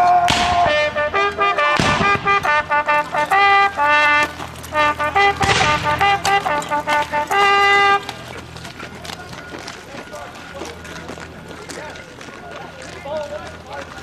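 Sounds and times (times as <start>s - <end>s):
sharp bangs: 0.0s - 8.1s
bugle playing a military call: 0.0s - 8.5s.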